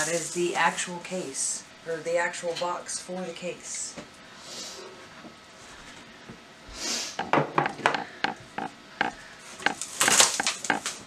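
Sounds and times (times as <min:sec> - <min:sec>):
cardboard flaps tapping and scraping: 0:07.2 - 0:11.0
styrofoam packing knocking: 0:07.2 - 0:11.0
cardboard rustling: 0:09.7 - 0:11.0.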